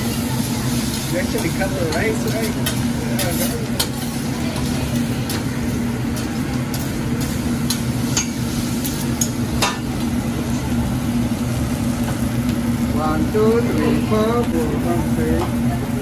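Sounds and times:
food sizzling on griddle: 0:00.0 - 0:16.0
steady hum: 0:00.0 - 0:16.0.

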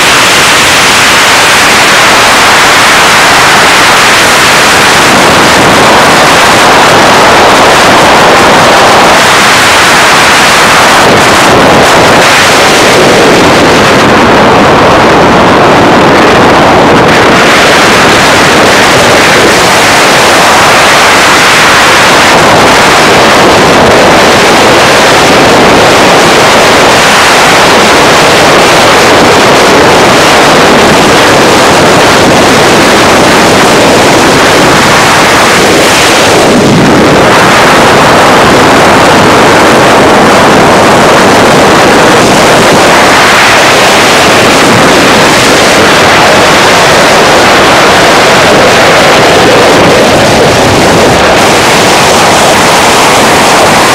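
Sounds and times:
car tyre and road noise: 0:00.0 - 0:53.9
wind buffeting microphone: 0:00.0 - 0:53.9.

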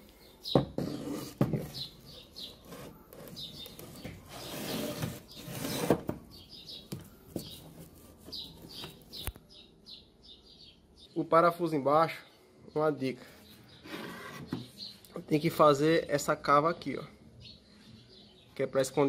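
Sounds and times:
small birds chirping: 0:00.0 - 0:19.0
wood scraping: 0:00.5 - 0:09.3, 0:13.8 - 0:14.9.

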